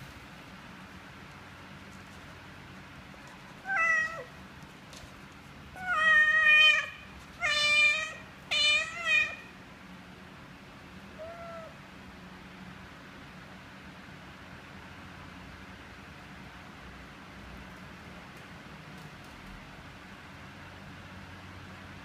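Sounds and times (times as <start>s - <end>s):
cat meowing: 3.6s - 4.4s, 5.8s - 9.6s, 11.1s - 11.8s.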